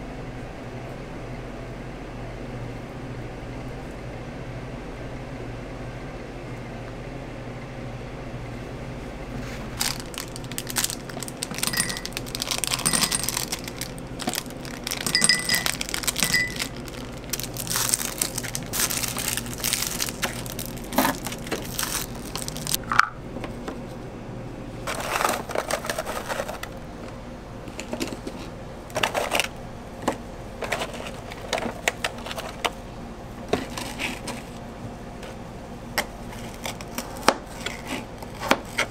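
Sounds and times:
kitchen hum: 0:00.0 - 0:38.9
plastic wrappers crinkling: 0:09.7 - 0:22.8, 0:24.8 - 0:26.8
utensils and containers clattering: 0:09.8 - 0:23.1, 0:24.8 - 0:26.8, 0:27.7 - 0:29.5, 0:30.6 - 0:32.7.

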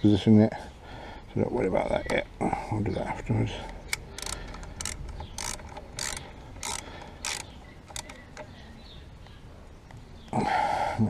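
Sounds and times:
ratchet spanner clicking: 0:03.9 - 0:08.2.

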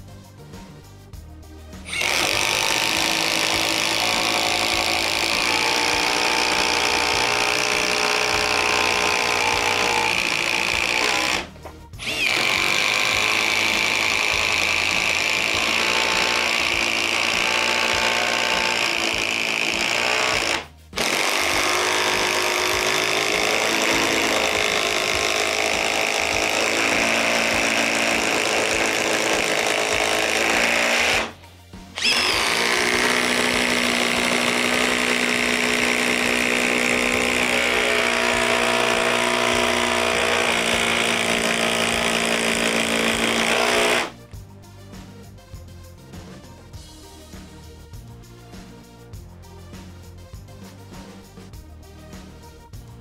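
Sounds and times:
impact driver hammering: 0:01.9 - 0:31.4, 0:32.0 - 0:44.2.

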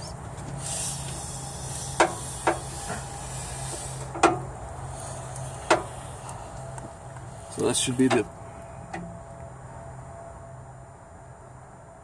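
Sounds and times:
engine blowby hissing: 0:00.0 - 0:09.6
low hum: 0:00.0 - 0:12.0.

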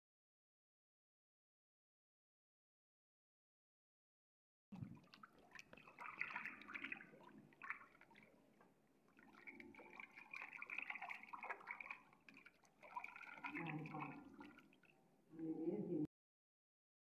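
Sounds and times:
cat paw splashing water: 0:04.8 - 0:15.0.

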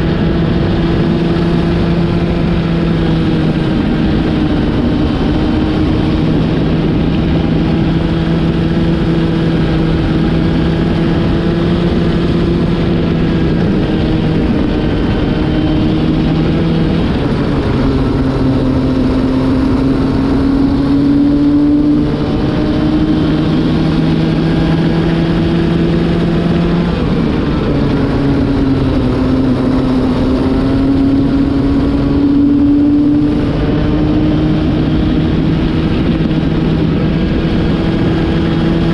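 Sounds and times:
kart engine running at speed: 0:00.0 - 0:38.9
wind noise: 0:00.0 - 0:38.9.

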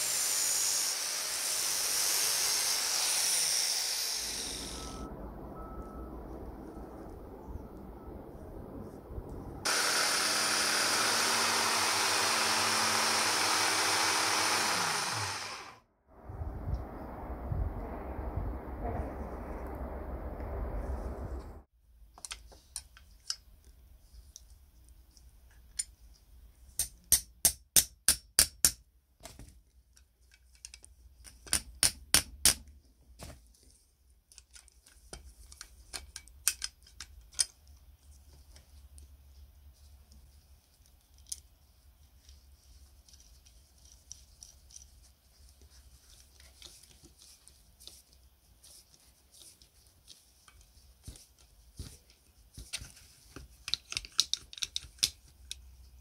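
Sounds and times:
faint low hum: 0:04.6 - 0:09.7, 0:16.2 - 0:21.7
small metal parts clicking: 0:53.6 - 0:55.6.

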